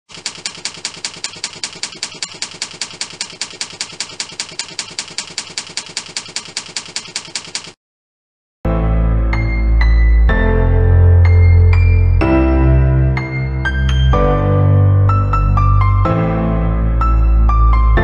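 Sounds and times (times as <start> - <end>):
typewriter keys clacking: 0.0 - 7.8.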